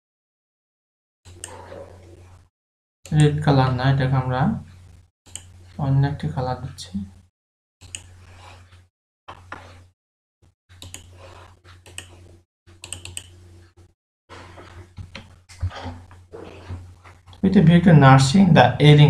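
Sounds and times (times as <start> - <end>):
mouse and keyboard clicks: 7.8 - 8.1, 10.8 - 12.2, 12.8 - 13.4.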